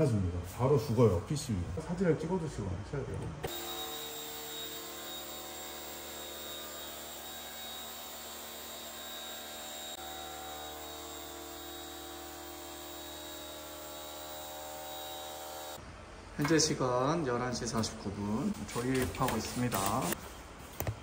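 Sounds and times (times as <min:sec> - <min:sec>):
pressure washer motor running: 0:03.5 - 0:15.8.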